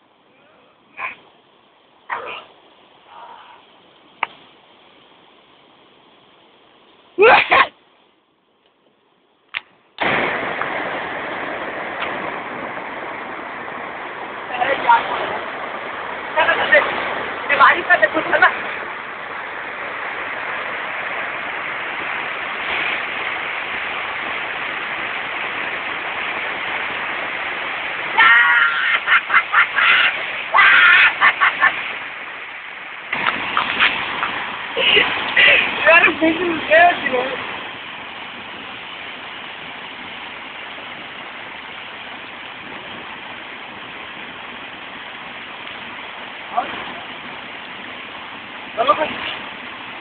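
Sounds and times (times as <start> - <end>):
river water rushing over rocks: 10.0 - 50.0.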